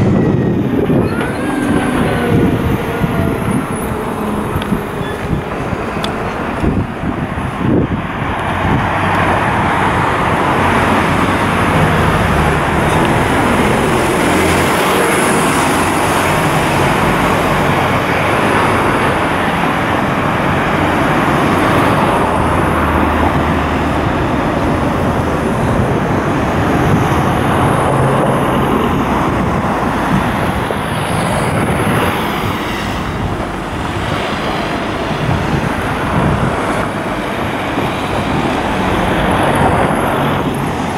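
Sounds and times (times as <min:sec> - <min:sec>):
cars driving past: 0:00.0 - 0:40.9
heavy vehicles passing: 0:00.0 - 0:40.9.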